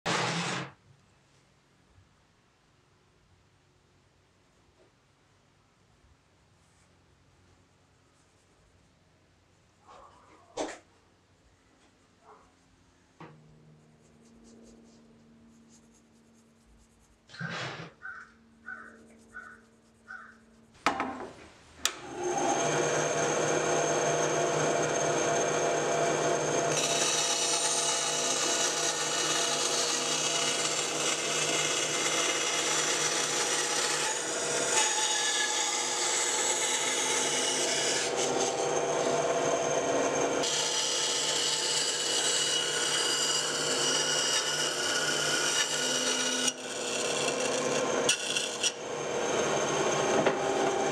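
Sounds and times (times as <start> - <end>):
band saw cutting wood: 0.1 - 0.7, 21.9 - 50.9.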